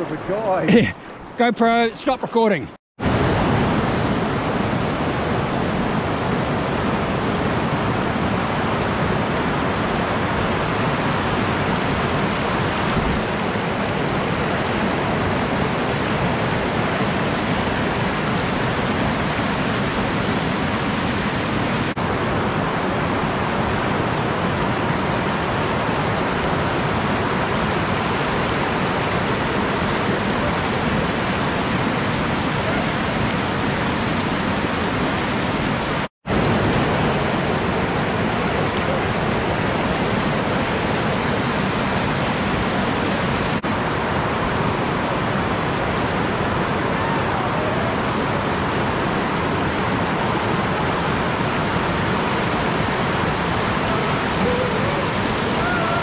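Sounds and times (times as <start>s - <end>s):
water rushing over boulders: 0.0s - 56.0s.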